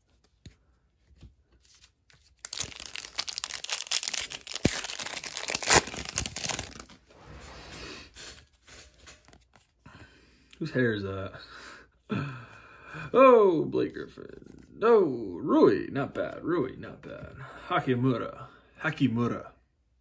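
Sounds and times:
plastic wrapper crinkling: 1.7 - 7.0.

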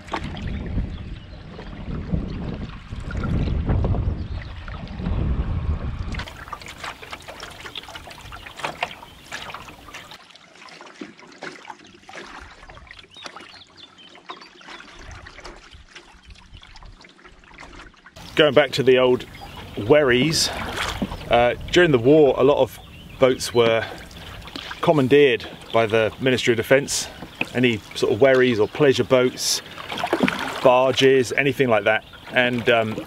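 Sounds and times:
paddle splashing in water: 0.0 - 5.2, 6.0 - 33.0
wind rumble on microphone: 0.0 - 9.9, 19.2 - 23.6
water dripping and trickling: 6.1 - 33.0.

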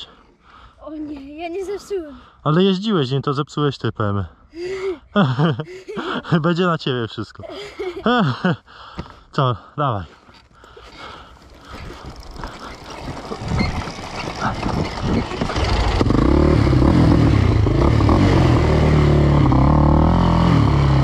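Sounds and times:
quad rolling over rough ground: 10.1 - 20.3
quad engine running: 10.7 - 21.0.

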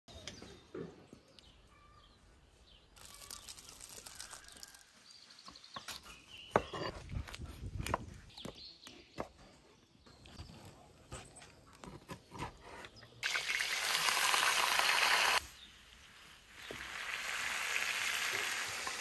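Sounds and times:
faint birdsong: 0.1 - 13.2
rustle: 2.6 - 5.5
knife chopping on wooden board: 5.8 - 8.6.

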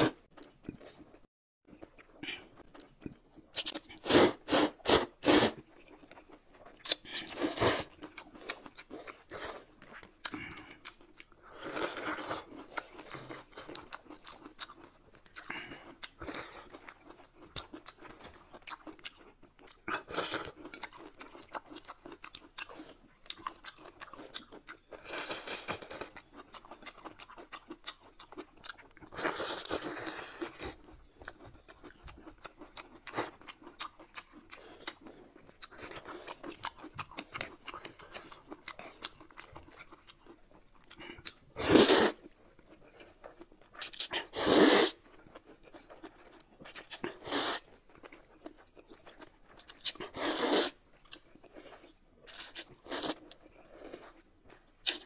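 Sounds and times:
close chewing: 0.0 - 55.0
noodles slurped: 2.2 - 6.0, 41.0 - 42.3, 43.9 - 45.0, 46.7 - 47.8, 49.8 - 50.8.

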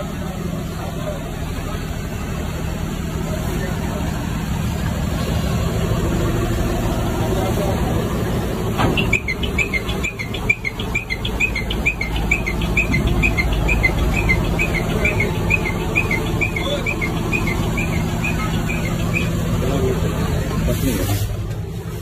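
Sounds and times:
diesel truck engine idling: 0.0 - 22.0
bird chirping: 9.0 - 20.0.

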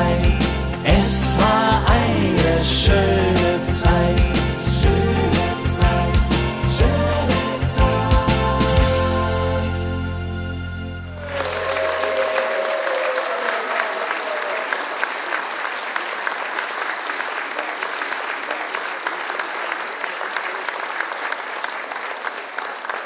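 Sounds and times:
audience applauding: 11.1 - 23.0.

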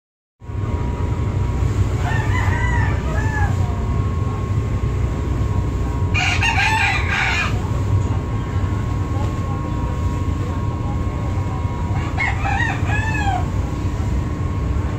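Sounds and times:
ferry engines droning: 0.4 - 14.9
rooster crowing: 1.9 - 3.8, 6.1 - 7.6, 11.9 - 13.6.

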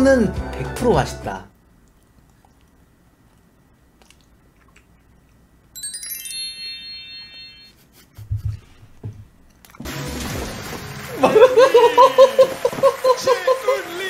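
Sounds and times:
chiming jingle: 5.8 - 7.8.

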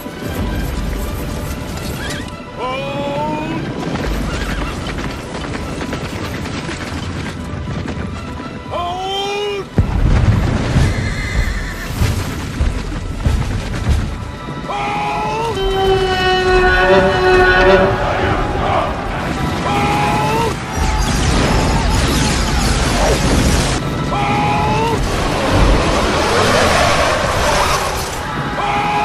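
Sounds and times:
dramatic music: 0.0 - 29.0
horses neighing: 1.8 - 5.8, 10.8 - 12.7.

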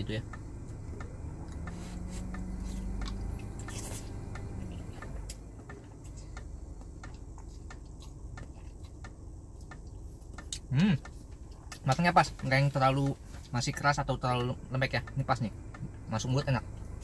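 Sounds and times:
chewing: 0.7 - 11.9
wet mouth clicks: 1.5 - 5.1.

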